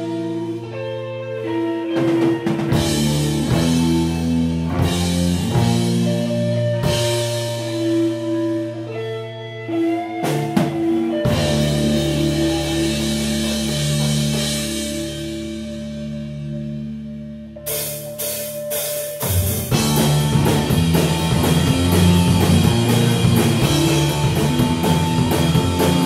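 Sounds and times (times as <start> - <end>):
rock band playing: 0.0 - 26.0
drum and cymbal hits: 17.7 - 26.0.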